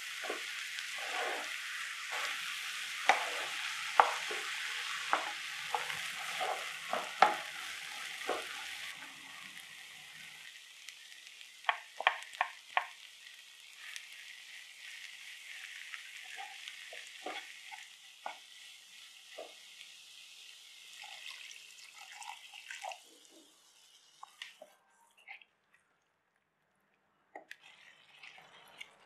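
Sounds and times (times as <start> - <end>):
spatula stirring and scraping: 0.0 - 9.0, 13.8 - 19.7, 27.4 - 29.0
masala sizzling in a frying pan: 0.0 - 24.7, 27.6 - 29.0
grinder jar tapping on pan: 3.0 - 7.5, 8.2 - 8.5, 11.6 - 13.0.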